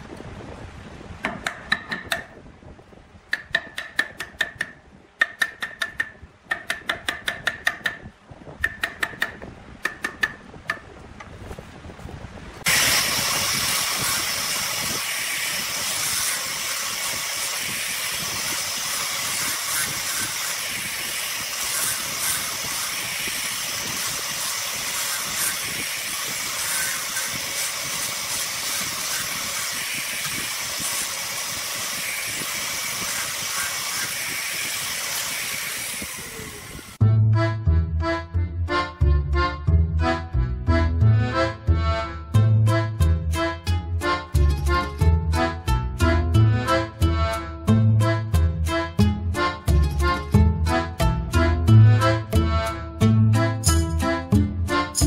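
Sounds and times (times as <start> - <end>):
angle grinder sanding wood: 12.7 - 37.0.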